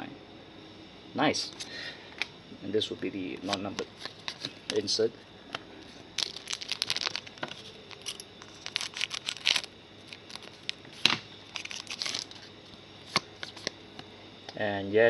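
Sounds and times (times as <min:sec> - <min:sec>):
paper cards rustling: 0:03.4 - 0:04.9, 0:05.8 - 0:12.5
foil pack crinkling and tearing: 0:06.2 - 0:12.5.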